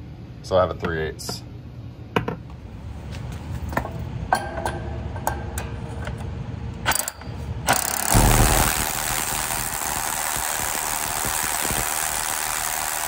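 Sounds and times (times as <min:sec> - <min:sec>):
low hum: 0:02.6 - 0:13.0
drill boring into concrete: 0:07.7 - 0:13.0.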